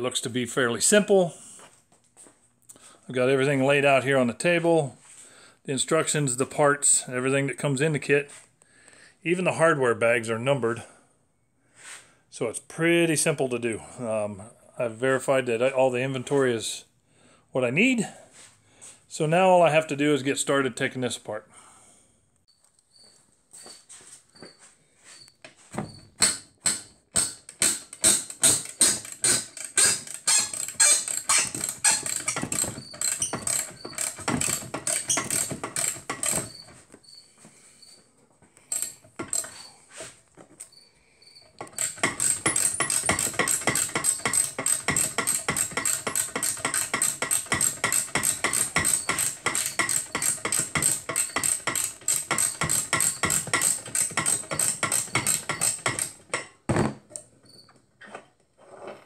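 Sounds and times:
ratchet wrench clicking: 26.2s - 36.6s, 38.7s - 39.6s, 41.6s - 56.2s.

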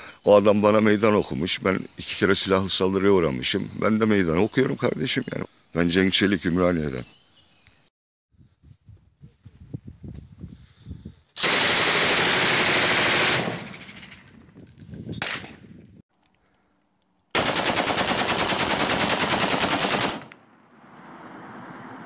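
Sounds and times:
machine gun automatic fire: 11.4s - 14.2s, 17.4s - 20.3s.

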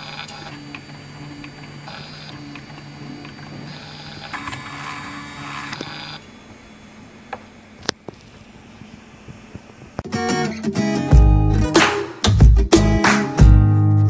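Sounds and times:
stepper motors whining: 0.0s - 10.0s
music: 10.0s - 14.0s.

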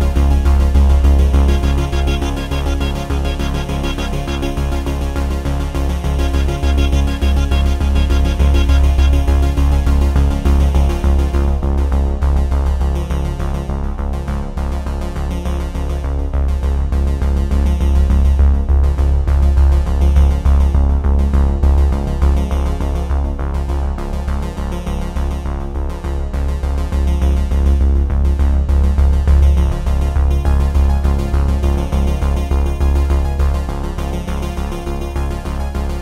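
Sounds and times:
electronic synthesizer music: 0.0s - 11.7s
steady deep bass: 0.0s - 36.0s.

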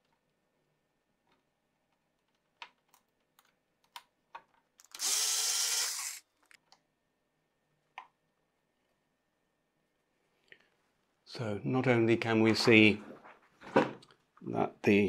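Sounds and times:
electric screwdriver motor whine: 4.9s - 6.2s.

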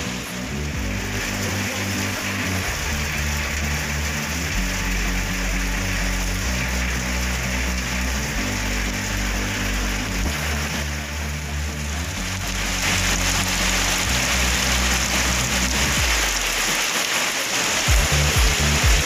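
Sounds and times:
background music with low notes: 0.0s - 17.0s, 17.8s - 19.0s
heavy rain falling: 0.0s - 19.0s
runoff splashing into pond: 12.2s - 19.0s.

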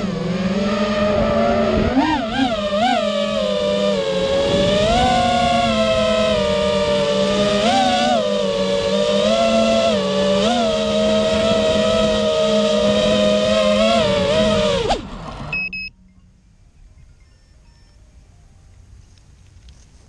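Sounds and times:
quadcopter motors whining: 0.0s - 15.9s
short electronic beep: 15.5s - 18.0s.

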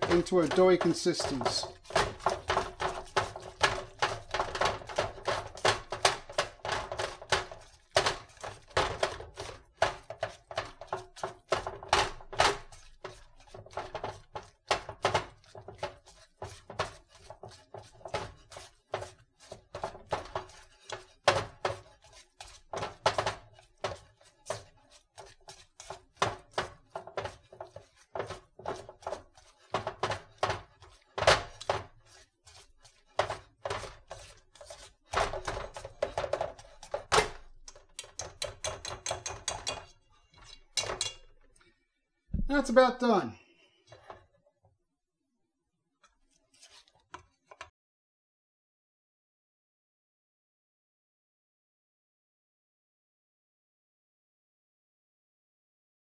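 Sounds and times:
dough thunking in metal bowl: 0.0s - 41.5s.

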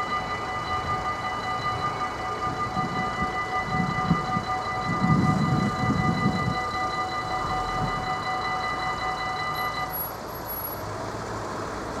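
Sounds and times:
level crossing warning bell: 0.0s - 10.7s
road vehicle noise: 0.0s - 12.0s.

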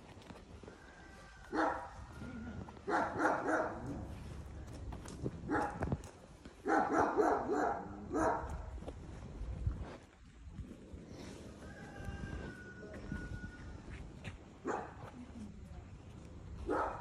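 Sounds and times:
dog barking: 1.5s - 2.0s, 2.9s - 4.0s, 5.5s - 5.8s, 6.6s - 8.5s, 14.6s - 15.0s, 16.6s - 17.0s.

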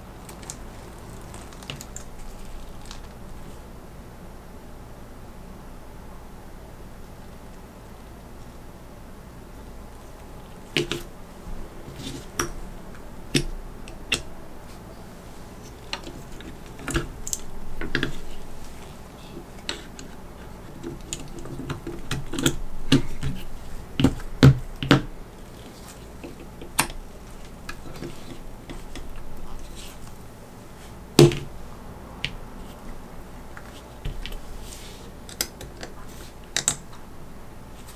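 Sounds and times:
rustling: 0.0s - 3.8s, 9.5s - 37.9s
plastic parts clicking and knocking: 19.6s - 25.1s, 35.3s - 36.9s.

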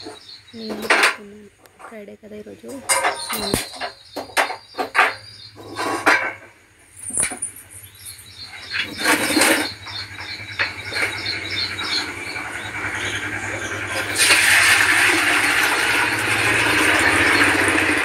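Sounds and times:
metal vessels clinking: 2.7s - 7.8s.

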